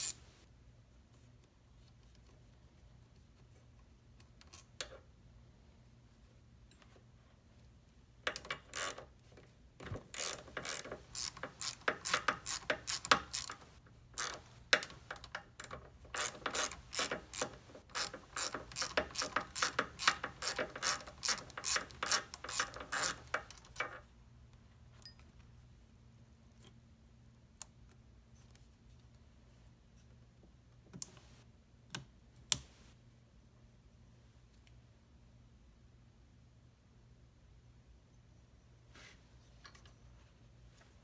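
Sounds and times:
socket ratchet clicking: 0:00.0 - 0:00.2, 0:10.1 - 0:23.9.

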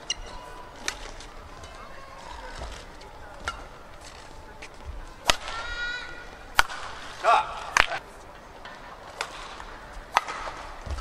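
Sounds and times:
rackets hitting shuttlecock: 0:05.2 - 0:08.0, 0:08.6 - 0:11.0.

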